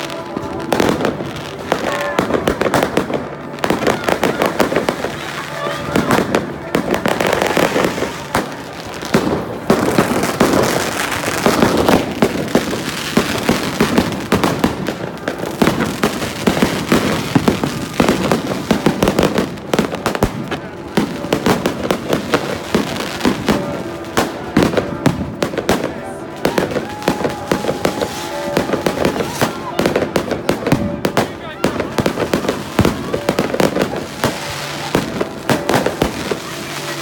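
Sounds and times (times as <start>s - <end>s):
fireworks bangs and crackles: 0.0s - 37.0s.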